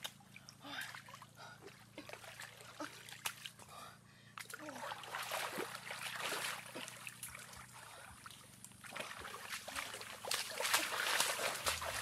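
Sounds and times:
water splashing as person wades: 0:04.4 - 0:12.0.

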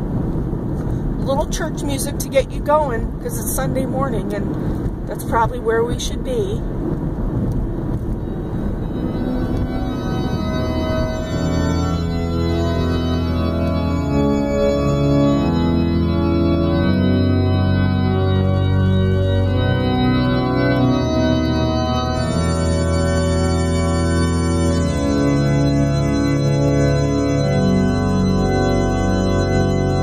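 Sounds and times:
organ music: 0:08.1 - 0:30.0.

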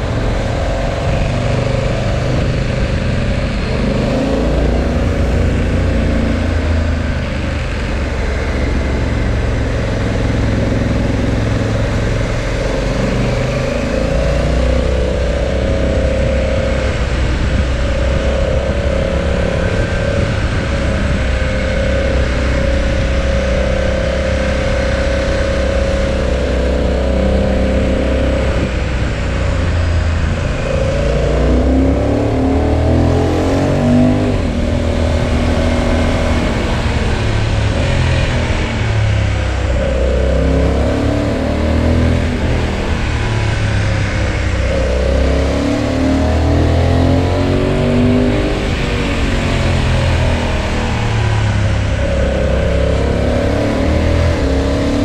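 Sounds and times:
motorcycle engine revving: 0:00.0 - 0:55.0
wind noise rushing: 0:11.7 - 0:26.3.

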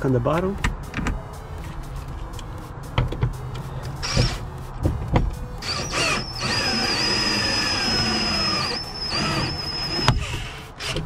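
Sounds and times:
cordless drill whining: 0:05.6 - 0:11.0.

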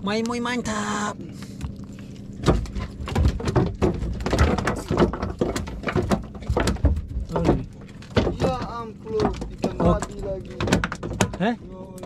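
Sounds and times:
rapid knocks and thumps: 0:02.4 - 0:12.0.

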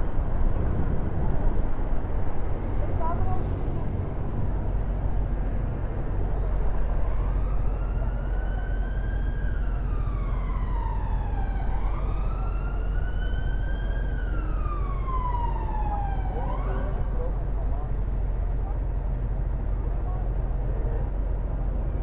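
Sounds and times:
low rumble of road traffic: 0:00.0 - 0:22.0
siren wailing: 0:07.0 - 0:17.2.

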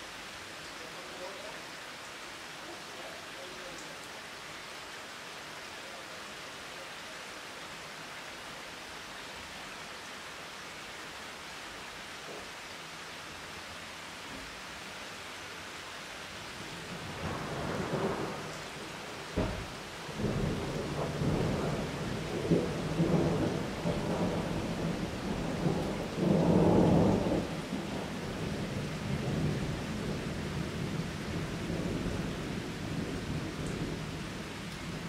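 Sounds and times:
rain falling on foliage: 0:00.0 - 0:35.0
low thunder rumbles: 0:16.9 - 0:35.0
thunder crack: 0:19.4 - 0:24.9.

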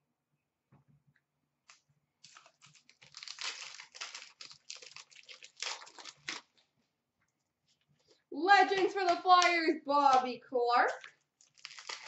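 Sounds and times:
wrapper being torn and crinkled: 0:02.2 - 0:06.7, 0:10.9 - 0:12.0.

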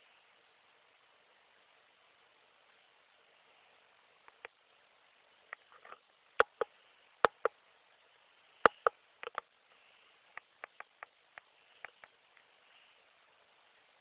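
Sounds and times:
sharp clicks or taps: 0:06.4 - 0:07.5, 0:08.7 - 0:09.4, 0:10.4 - 0:12.2.

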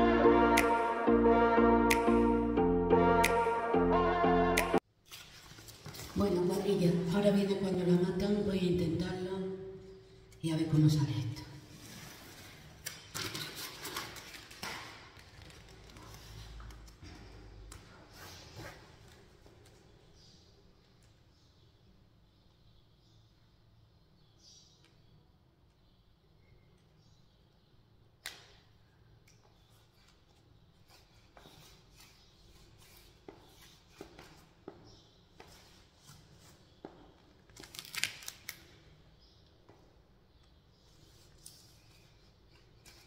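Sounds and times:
crisp crackles: 0:37.5 - 0:38.7.

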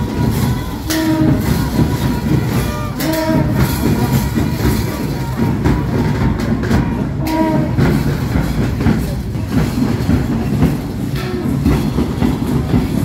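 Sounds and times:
crowd and street noise: 0:00.0 - 0:13.0
marching band drums beating: 0:00.0 - 0:13.0.

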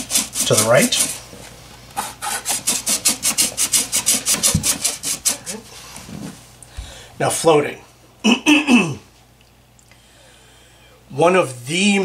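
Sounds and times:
hands rubbing on wood: 0:01.9 - 0:06.4.

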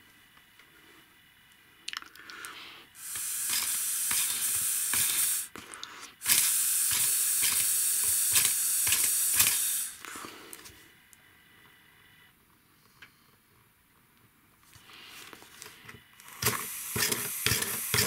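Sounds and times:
air hissing through engine: 0:02.4 - 0:12.0, 0:16.2 - 0:18.0.

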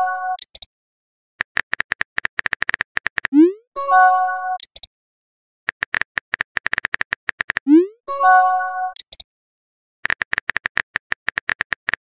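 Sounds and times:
phone keyboard typing clicks: 0:01.4 - 0:03.4, 0:04.6 - 0:04.9, 0:05.7 - 0:07.7, 0:08.9 - 0:09.2, 0:10.0 - 0:12.0.

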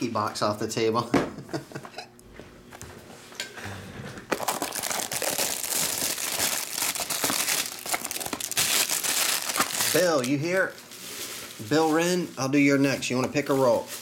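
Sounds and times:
plastic shrink wrap crinkling: 0:04.3 - 0:14.0.

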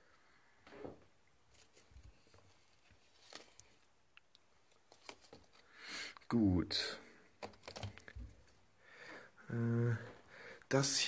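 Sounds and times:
soft rustles: 0:00.6 - 0:05.7.

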